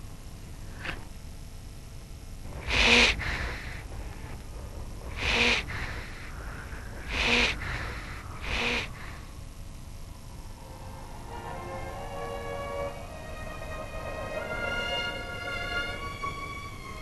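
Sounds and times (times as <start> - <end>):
seal breathy calls: 2.6 - 9.3.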